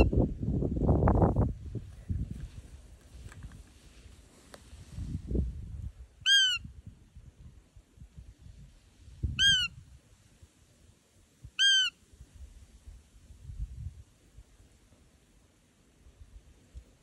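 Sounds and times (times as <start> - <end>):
deer call squeak: 6.3 - 6.6, 11.6 - 12.0.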